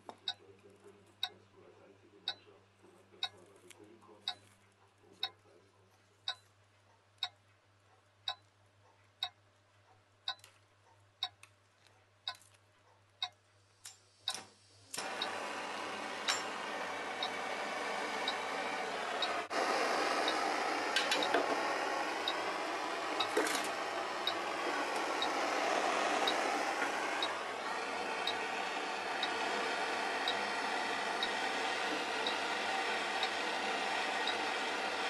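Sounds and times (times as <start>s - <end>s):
clock ticking: 0.0s - 0.4s, 2.2s - 2.5s, 4.2s - 4.5s, 5.2s - 5.4s, 6.2s - 11.5s, 12.2s - 12.5s, 13.2s - 13.4s, 15.0s - 35.0s
gas blowtorch hissing: 14.8s - 35.0s.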